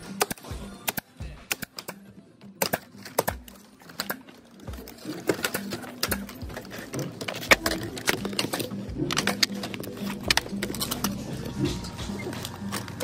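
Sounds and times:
plastic panels knocking: 2.6s - 13.0s.

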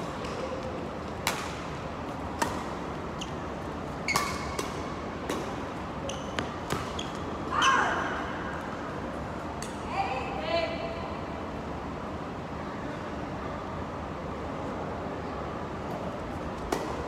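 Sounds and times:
racket striking shuttlecock: 1.2s - 1.7s, 2.3s - 2.8s, 4.1s - 5.6s, 6.4s - 7.0s, 16.6s - 17.0s
shoes squeaking on court floor: 3.1s - 4.6s, 6.0s - 7.9s.

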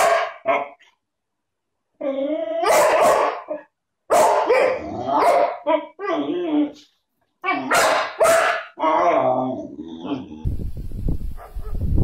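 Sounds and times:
dog barking: 0.0s - 0.8s, 2.6s - 6.0s, 7.6s - 8.8s, 11.4s - 11.9s.

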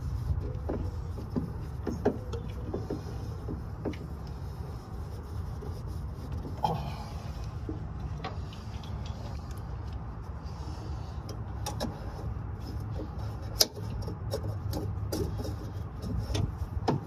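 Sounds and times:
steady low rumble: 0.0s - 17.0s
clicks and knocks on hoses: 0.4s - 4.4s, 11.2s - 17.0s.

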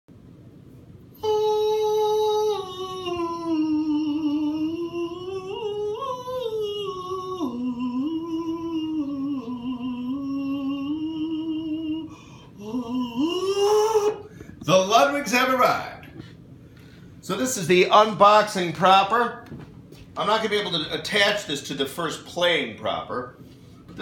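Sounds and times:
person singing wordless tune: 1.1s - 16.3s.

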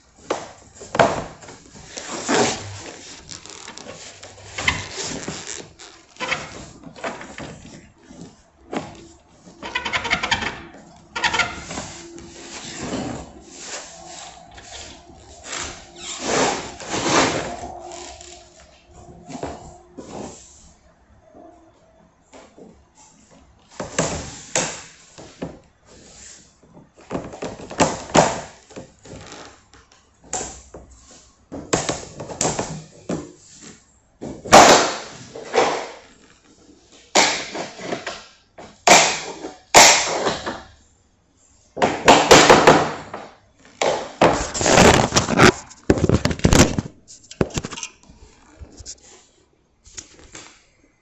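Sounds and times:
knocks and thuds of flooring work: 0.2s - 18.4s, 34.2s - 36.0s, 37.2s - 40.8s, 41.8s - 47.6s.

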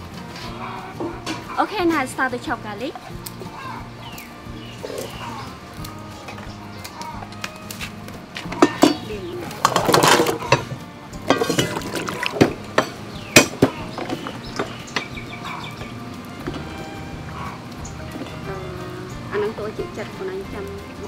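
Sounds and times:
pot and lid clattering: 0.4s - 1.7s, 8.4s - 15.1s.

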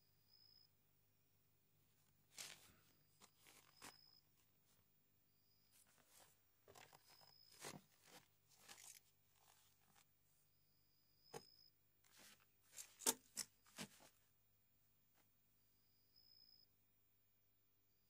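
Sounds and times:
paper and cloth rustling: 2.3s - 4.2s, 5.7s - 10.1s, 12.1s - 14.2s.

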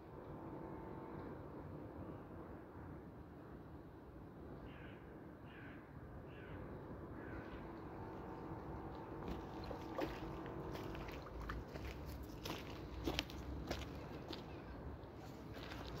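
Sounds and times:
crow cawing: 4.7s - 6.6s, 7.2s - 7.6s.

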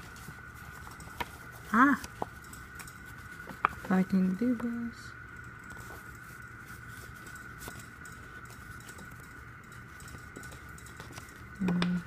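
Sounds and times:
paper rustling: 0.0s - 4.7s.

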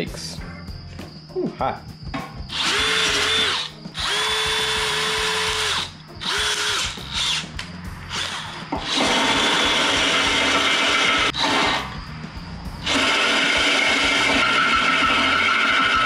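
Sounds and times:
cordless drill boring through steel: 2.5s - 7.4s, 8.1s - 11.9s, 12.8s - 16.0s.

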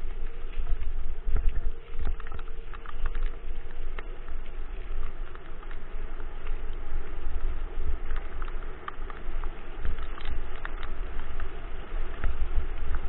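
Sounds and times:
scooter wheels rumbling on dirt: 0.0s - 13.0s
wind on camera: 0.0s - 13.0s.

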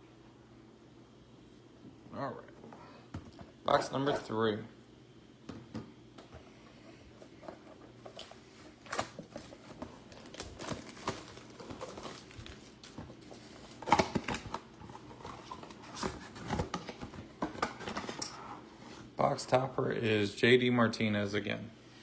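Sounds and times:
cardboard and wrapper crinkling: 7.3s - 18.2s.

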